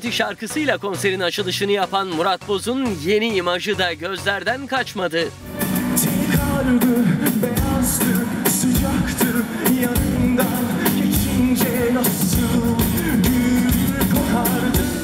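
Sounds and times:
band playing: 5.2s - 15.0s
steady drum beat: 5.4s - 15.0s
man singing pop: 5.8s - 15.0s.

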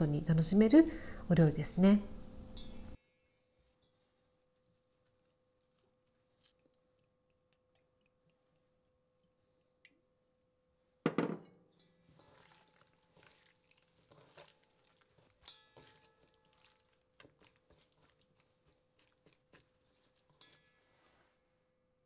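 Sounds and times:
wet squelching of hands on meat: 12.2s - 20.6s.

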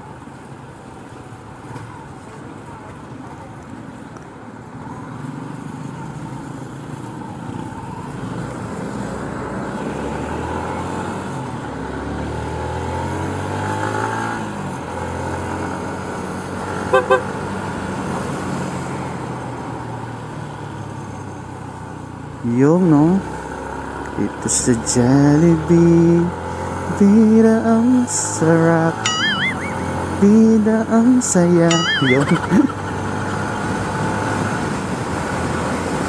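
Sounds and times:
road and wind noise: 0.0s - 36.0s
horn toots: 16.9s - 17.3s.

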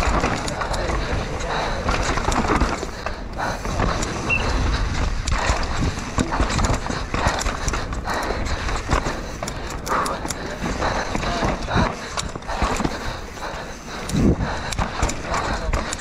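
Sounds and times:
bike knocks and rattles: 0.0s - 13.3s, 14.1s - 16.0s
wind buffeting microphone: 0.0s - 16.0s.

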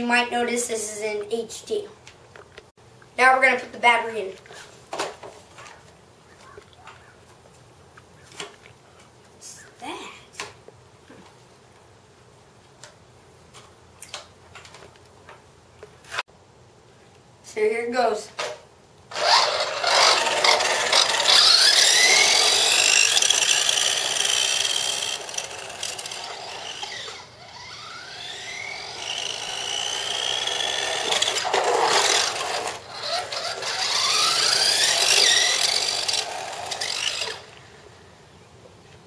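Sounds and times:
rc car electric motor whining: 19.1s - 37.7s.

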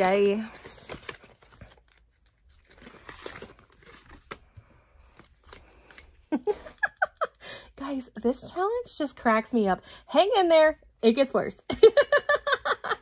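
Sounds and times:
paper rustling and crinkling: 0.0s - 6.3s.

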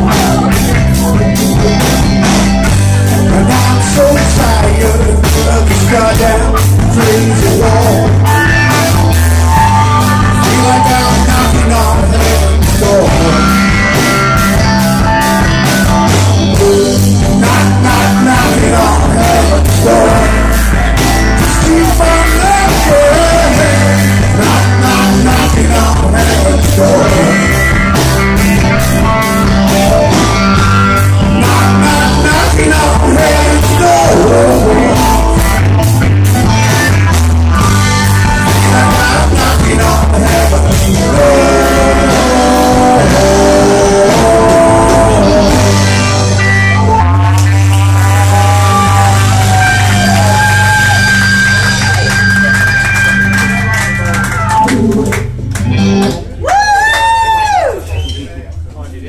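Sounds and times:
man singing lead: 0.0s - 35.9s, 37.6s - 51.5s
drums with driving beat: 0.0s - 57.4s
electric guitar: 0.0s - 58.0s
bass: 0.0s - 59.0s
woman whooping: 56.4s - 58.0s.

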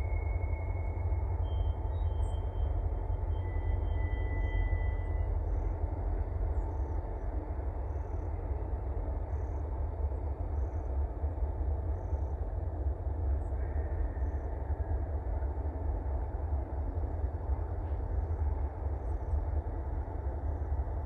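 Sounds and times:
faint wheel squeal: 0.0s - 5.6s
diesel locomotive engines rumbling: 0.0s - 21.0s.

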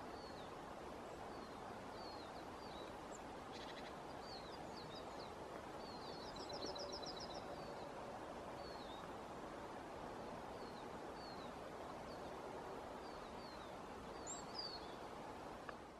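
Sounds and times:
faint hiss: 0.0s - 15.9s.

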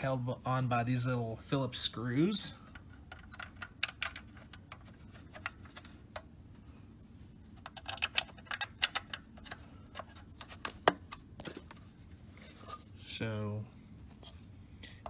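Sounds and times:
small screws and plastic parts clicking: 2.7s - 5.6s, 7.6s - 10.2s.

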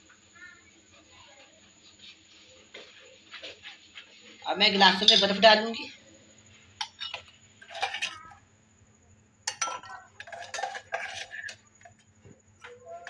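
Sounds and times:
ice cubes clinking in glasses: 5.0s - 5.4s, 6.8s - 8.3s, 9.5s - 12.0s.

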